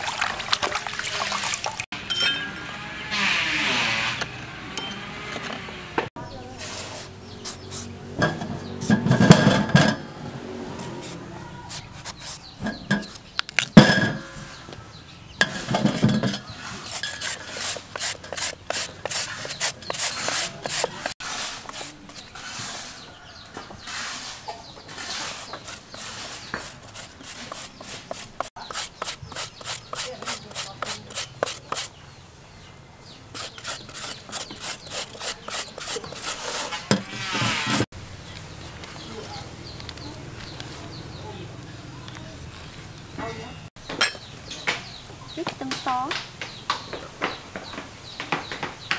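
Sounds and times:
knife knocking and scraping: 15.4 - 22.3, 33.3 - 37.8
papaya rasping on metal grater: 15.9 - 22.9, 24.9 - 31.9, 33.3 - 37.8.

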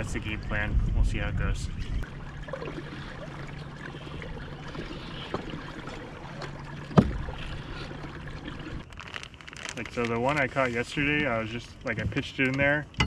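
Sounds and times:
water sloshing around kayak: 1.7 - 8.9.

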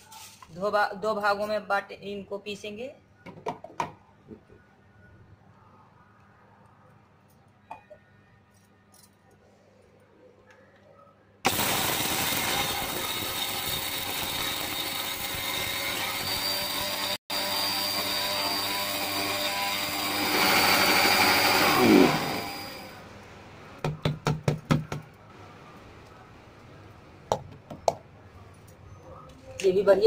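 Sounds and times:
mixer grinder grinding spice seeds: 11.5 - 22.8.

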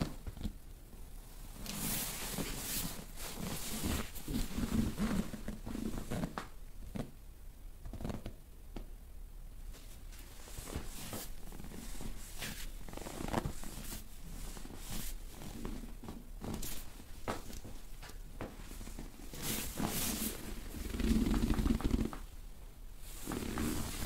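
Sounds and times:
hands rubbing on fabric: 1.6 - 7.1, 9.7 - 22.3, 23.0 - 24.0.

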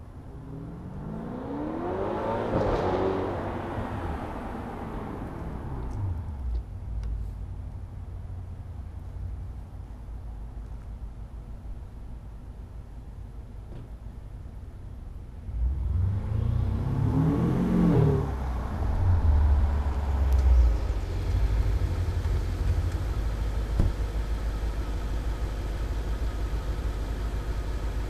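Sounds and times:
car exhaust accelerating: 15.5 - 28.0.

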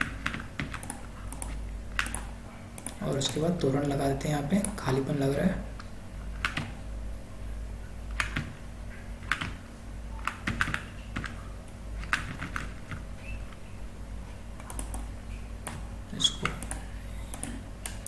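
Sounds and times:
keyboard and mouse clicks: 0.0 - 4.0, 5.8 - 6.8, 8.1 - 8.6, 9.2 - 9.6, 10.2 - 11.4, 12.0 - 13.6, 14.6 - 18.0
steady low hum: 0.0 - 18.0.

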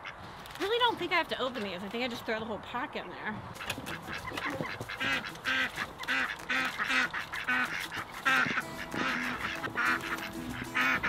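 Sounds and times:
ducks quacking: 3.6 - 11.0.

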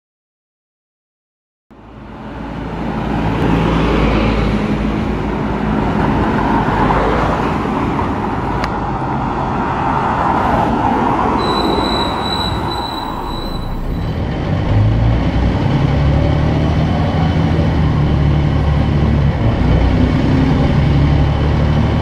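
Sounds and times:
road noise: 1.7 - 22.0
high brake squeal: 11.4 - 14.2
diesel bus engine running: 11.4 - 22.0.

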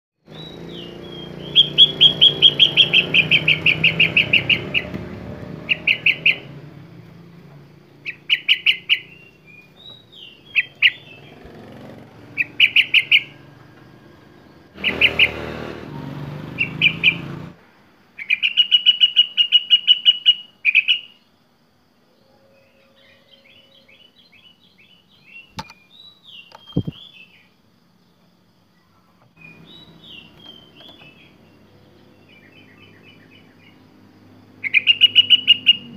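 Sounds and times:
bird singing trills and whistles: 0.3 - 5.0, 5.6 - 6.6, 8.0 - 11.6, 12.3 - 13.5, 14.4 - 15.5, 16.5 - 17.4, 18.2 - 21.2, 22.5 - 27.5, 29.4 - 33.9, 34.5 - 35.9.

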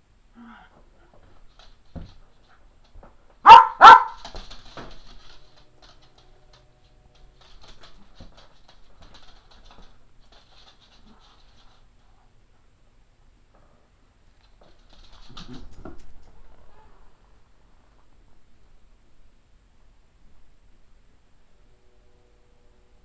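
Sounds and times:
dogs scuffling on floor: 1.1 - 12.3
dog barking: 3.4 - 4.2.

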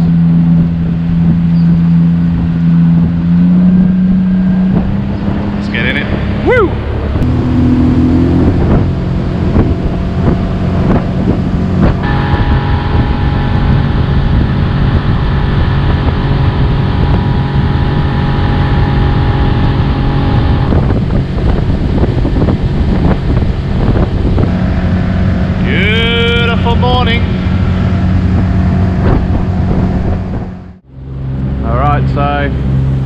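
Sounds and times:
high motor whine: 0.0 - 33.0
outboard motor running: 0.0 - 33.0
wind on microphone: 0.0 - 33.0.

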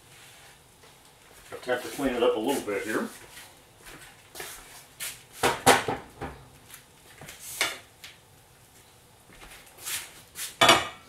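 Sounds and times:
cutting board knocking on stovetop: 5.4 - 6.4.

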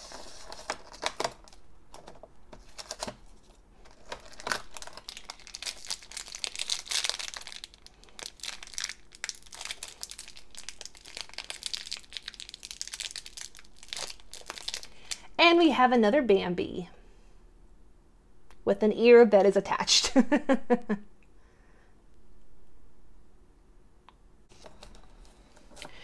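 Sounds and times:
foil bag crinkling and tearing: 0.0 - 1.6, 3.8 - 15.2.

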